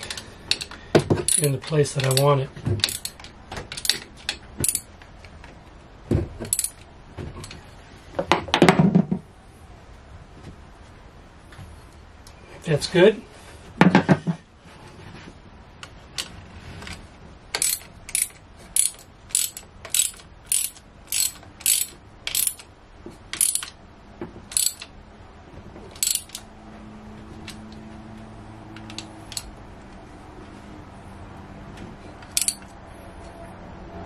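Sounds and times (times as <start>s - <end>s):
ratchet wrench clicking: 0.0s - 4.9s, 6.5s - 6.8s, 17.5s - 22.7s, 23.3s - 23.8s, 24.5s - 24.9s, 26.0s - 26.5s, 28.8s - 29.5s, 32.2s - 32.7s.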